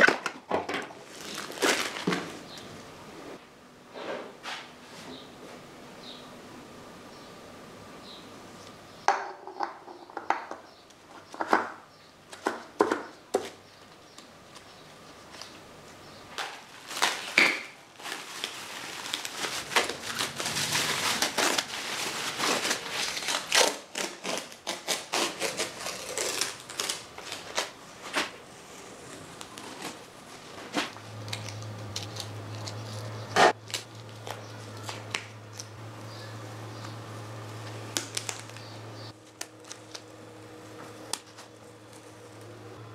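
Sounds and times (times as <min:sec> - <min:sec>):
masking tape peeling: 0:16.4 - 0:35.8, 0:37.6 - 0:40.2.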